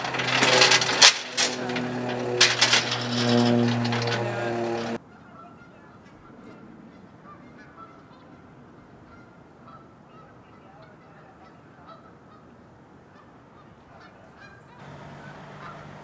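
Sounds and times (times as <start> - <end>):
low steady rumble: 0.0 - 5.0
geese honking: 0.0 - 12.5, 13.1 - 16.0.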